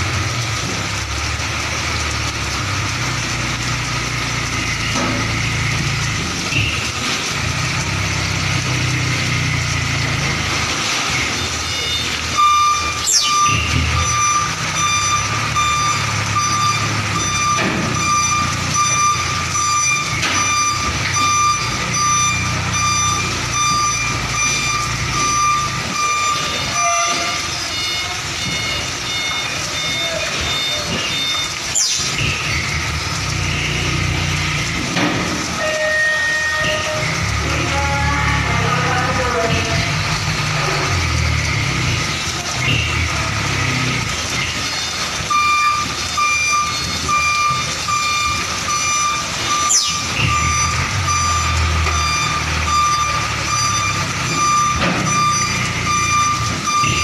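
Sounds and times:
diesel truck engine running: 0.0 - 57.0
reversing alarm beeping: 9.7 - 34.6, 35.6 - 39.9, 42.6 - 57.0
sharp falling squeal: 11.7 - 28.7, 49.0 - 57.0.

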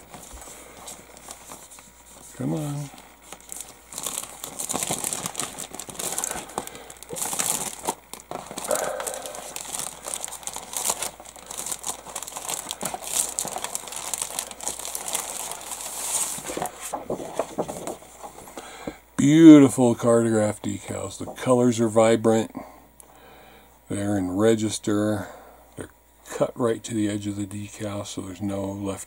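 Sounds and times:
plastic bag crinkling: 0.0 - 18.6.

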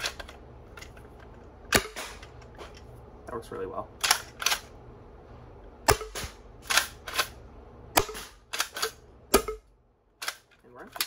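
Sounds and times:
foam dart blaster firing shots: 1.7 - 2.2, 5.9 - 6.8, 8.0 - 8.5.

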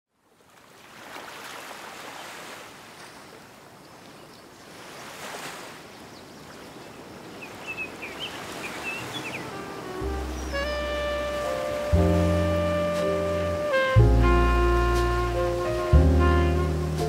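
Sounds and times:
high bird chirps: 7.4 - 9.5
waves hissing: 7.9 - 17.0.

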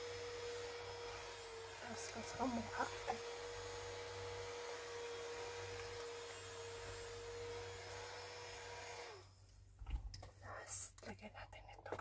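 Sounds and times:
handheld fan whirring: 0.0 - 9.4.

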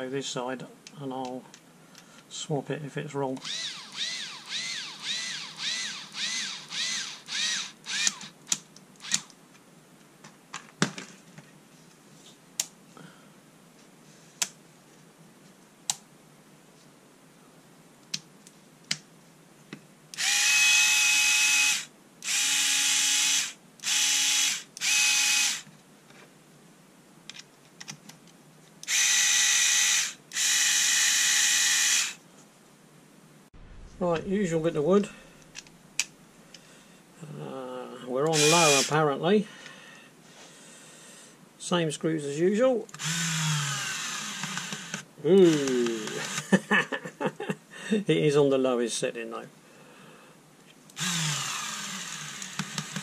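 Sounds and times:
cordless screwdriver motor running: 3.4 - 8.3, 9.0 - 9.3, 20.2 - 25.7, 28.8 - 32.2, 38.3 - 38.9, 43.0 - 46.4, 51.0 - 53.0.

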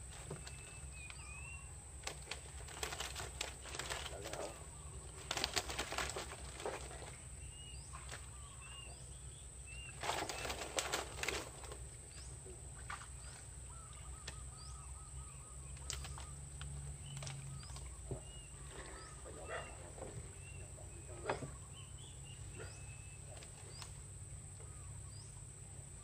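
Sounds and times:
water and mud splashing: 0.0 - 8.9, 9.7 - 14.6
small birds chirping: 0.0 - 26.0.

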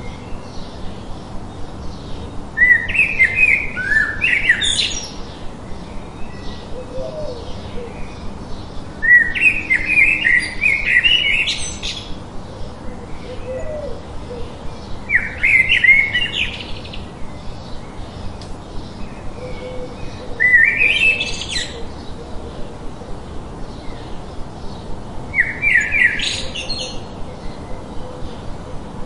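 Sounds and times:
songbird singing rising notes: 0.0 - 29.0
steady rushing hiss: 0.0 - 29.0.

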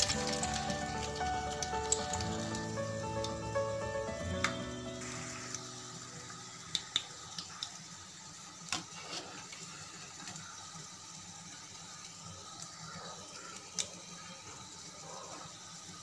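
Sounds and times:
background music: 0.0 - 6.8
food deep-frying in oil: 0.0 - 16.0.

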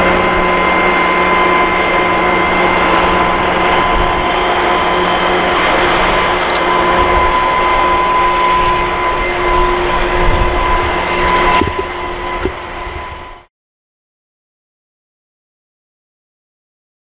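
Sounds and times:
high ringing tone: 0.0 - 13.5
train rumbling on rails: 0.0 - 13.5.

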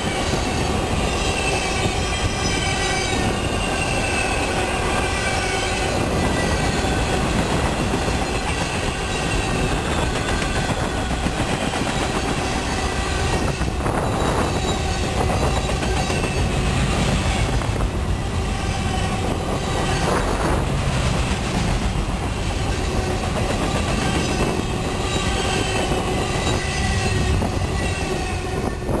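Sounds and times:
freight train wheels rumbling: 0.0 - 29.0
faint wheel squeals: 12.6 - 17.6.

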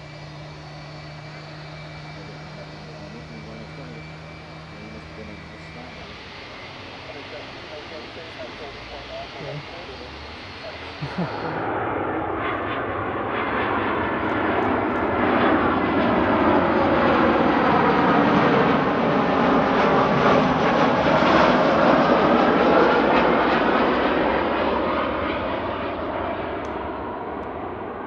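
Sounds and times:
jet airliner passing: 0.0 - 28.0.

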